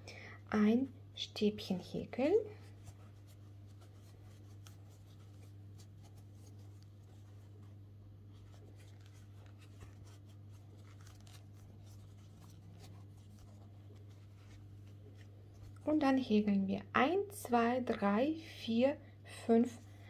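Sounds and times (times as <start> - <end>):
steady low hum: 0.0 - 20.0
yarn rustling: 1.7 - 16.2.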